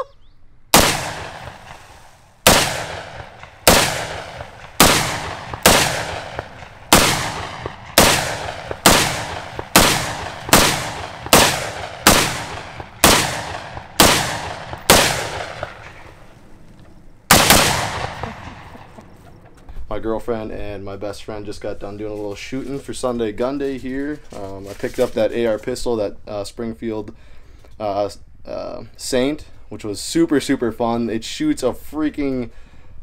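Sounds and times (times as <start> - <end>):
gunshots with echo: 0.7 - 16.3, 17.3 - 19.0.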